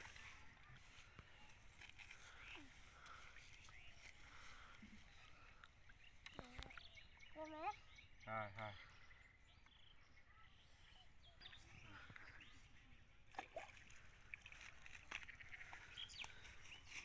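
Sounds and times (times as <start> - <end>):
water sloshing and splashing: 13.0 - 17.0.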